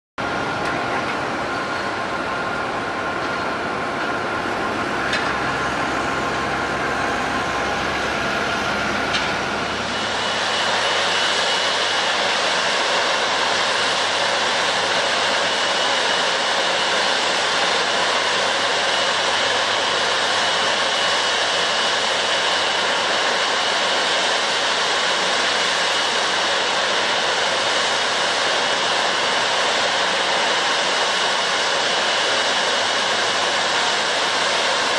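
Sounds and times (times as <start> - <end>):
high engine whine: 0.2 - 34.9
jet engines roaring: 0.2 - 34.9.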